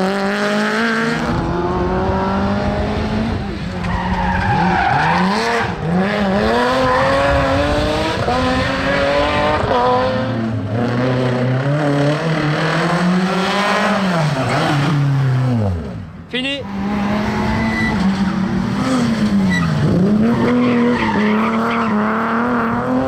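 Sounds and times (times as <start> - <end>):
rally car engines revving: 0.0 - 23.0.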